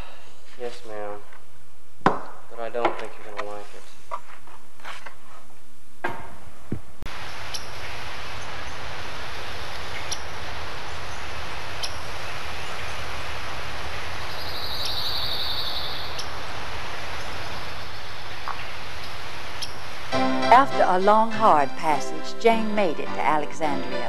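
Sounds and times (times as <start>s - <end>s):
outdoor rushing noise: 7.1s - 20.2s.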